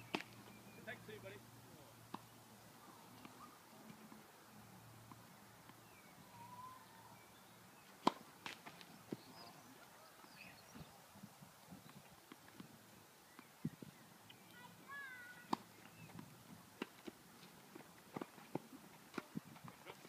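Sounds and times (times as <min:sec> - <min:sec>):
faint bird chirps: 0:05.8 - 0:07.9.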